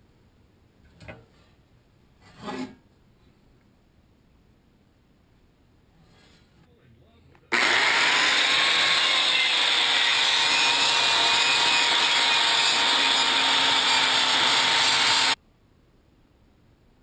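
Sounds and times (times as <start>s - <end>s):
angle grinder grinding steel: 7.5s - 15.4s.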